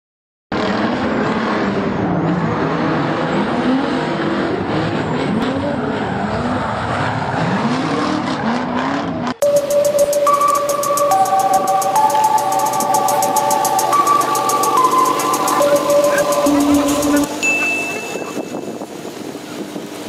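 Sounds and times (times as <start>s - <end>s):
fast ticking: 9.4s - 18.0s
held tones: 9.4s - 18.8s.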